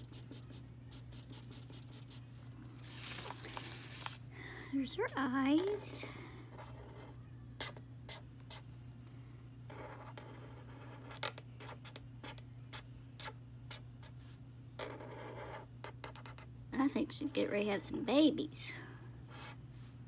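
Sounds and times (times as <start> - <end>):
marker scratching on paper: 0.0 - 2.2, 9.7 - 14.2, 14.8 - 16.5
steady low hum: 0.0 - 20.0.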